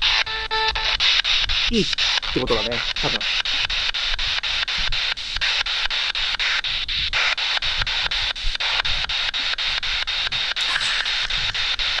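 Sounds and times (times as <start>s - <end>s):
radio static hiss sweeping: 0.0s - 12.0s
snatches of broadcast sound: 0.0s - 12.0s.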